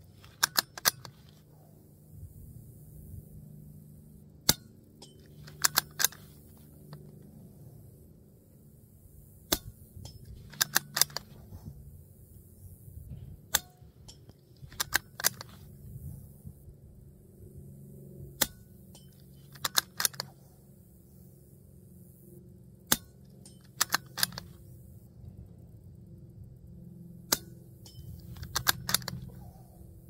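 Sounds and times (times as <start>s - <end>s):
rifle bolt metallic clicks: 0.1s - 1.5s, 4.5s - 7.3s, 9.5s - 11.6s, 13.5s - 16.0s, 18.4s - 20.4s, 22.9s - 24.8s, 27.3s - 29.7s
suppressed rifle shots: 0.1s - 1.7s, 4.4s - 7.1s, 9.4s - 11.7s, 14.6s - 15.8s, 19.3s - 20.6s, 22.9s - 24.8s, 27.3s - 29.8s.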